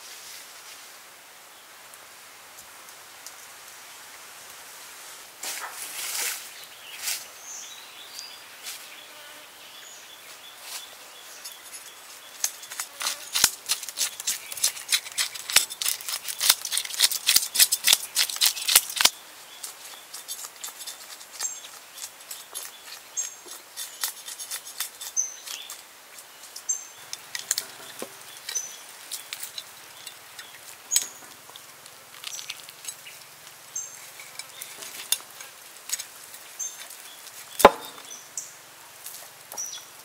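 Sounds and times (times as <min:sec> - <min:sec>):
knife scraping fish scales: 0:12.4 - 0:19.1, 0:20.0 - 0:25.8.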